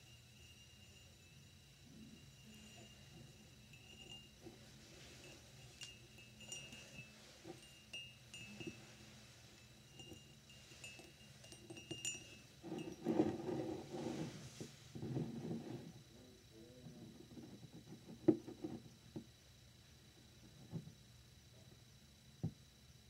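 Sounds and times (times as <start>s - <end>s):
fingernails tapping glass mug: 2.2s - 9.1s, 10.0s - 13.7s
glass scraping on wooden desk: 10.0s - 16.0s.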